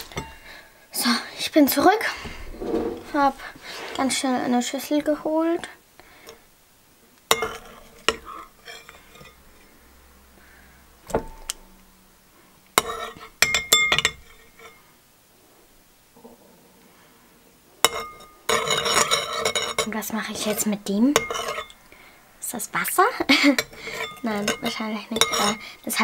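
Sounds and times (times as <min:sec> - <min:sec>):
metal spoon clinking on porcelain: 0:12.8 - 0:14.8, 0:17.9 - 0:19.9, 0:21.2 - 0:21.8, 0:23.6 - 0:25.6.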